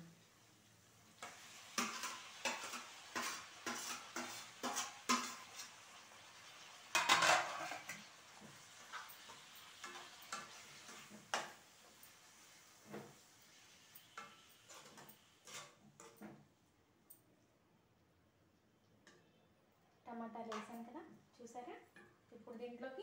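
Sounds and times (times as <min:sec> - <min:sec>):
oil sizzling: 0:00.0 - 0:16.7
metal spatula scraping a pan: 0:01.2 - 0:16.4.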